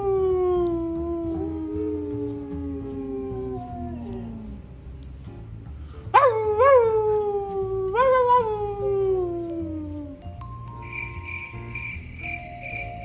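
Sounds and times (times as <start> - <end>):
dog howling: 0.0 - 4.6, 6.2 - 10.2.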